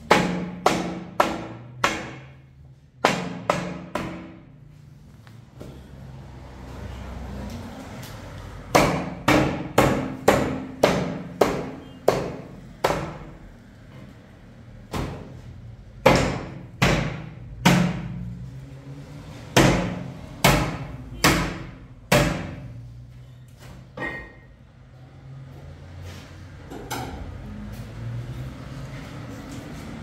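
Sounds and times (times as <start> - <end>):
hammer blows ringing: 8.7 - 13.3.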